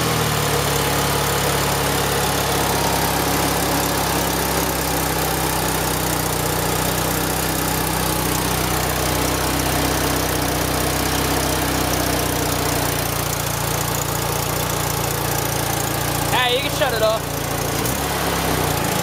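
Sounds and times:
engine idling: 0.0s - 19.0s.

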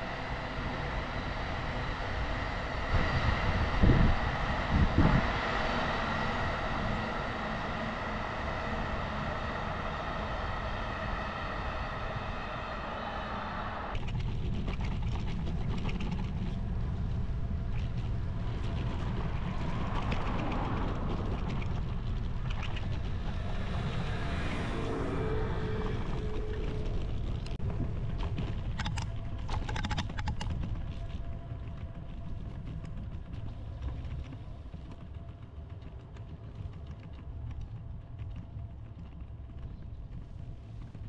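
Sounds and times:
road noise: 0.0s - 14.7s, 15.3s - 35.4s
wind rumbling on microphone: 0.0s - 41.0s
vehicle passing: 19.0s - 27.6s.

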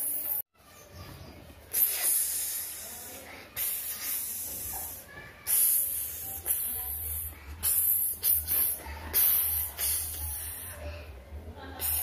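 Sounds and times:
snake-like hissing: 1.7s - 10.9s, 11.8s - 12.0s.

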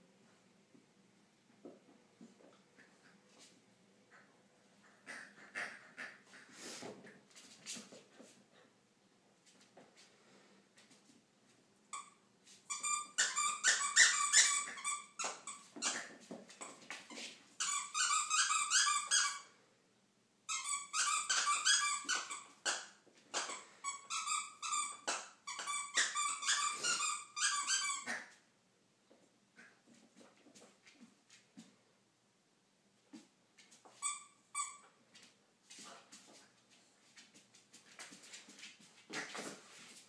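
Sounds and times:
squeaky dog toy squeaking: 11.9s - 19.5s, 20.5s - 28.4s, 34.0s - 35.0s.

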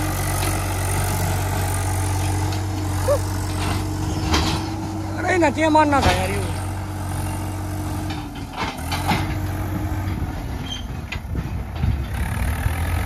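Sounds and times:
trolley clanks: 0.0s - 12.5s
tractor diesel engine running: 0.0s - 13.0s.

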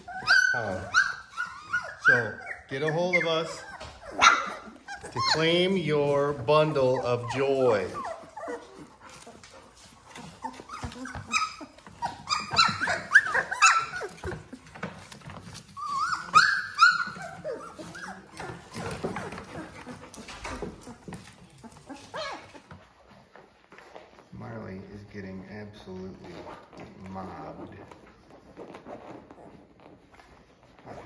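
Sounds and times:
puppies whimpering and squealing: 0.0s - 24.5s
puppies shuffling and clicking: 0.0s - 31.0s.

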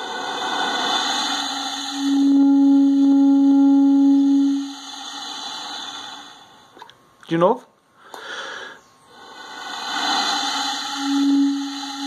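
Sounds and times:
breathy air hiss: 0.0s - 7.0s, 7.9s - 12.0s
bass clarinet held note: 1.9s - 4.8s.

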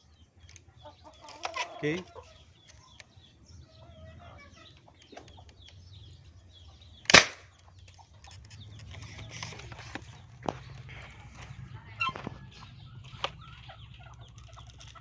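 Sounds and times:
air rifle shot: 7.1s - 7.5s.

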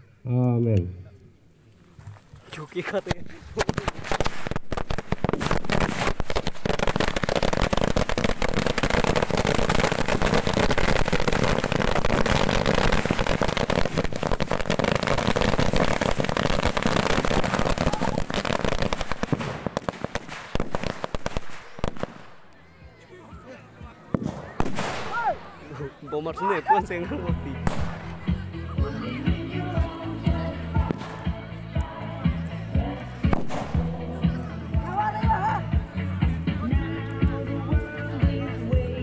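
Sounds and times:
firecrackers banging: 3.0s - 22.5s, 24.1s - 25.6s, 27.4s - 28.7s, 30.7s - 31.5s.

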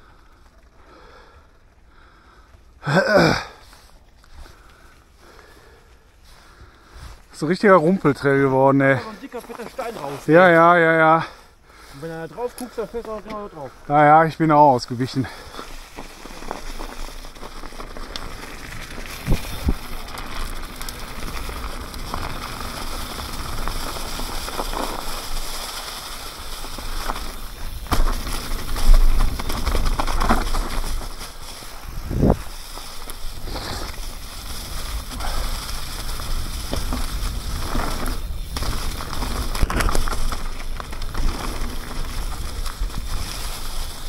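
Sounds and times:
bike tyres crackling over dry leaves: 0.0s - 44.0s
bike knocking and rattling: 15.2s - 44.0s
wind rumble on microphone: 31.9s - 32.5s.

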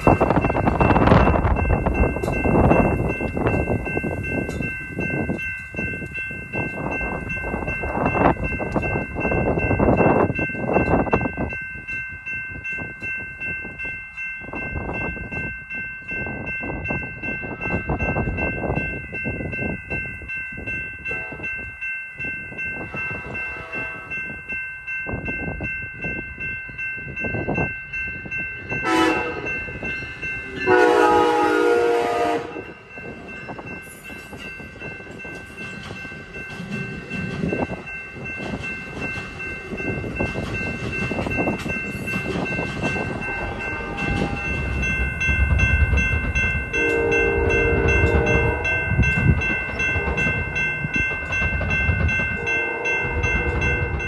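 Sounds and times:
crossing bells ringing: 0.0s - 54.0s
train horn blasts: 21.0s - 21.5s, 22.9s - 24.3s, 28.8s - 29.6s, 30.5s - 32.8s, 43.3s - 44.7s, 46.7s - 49.1s, 52.4s - 54.0s
train wheels clattering on rails: 32.6s - 54.0s.

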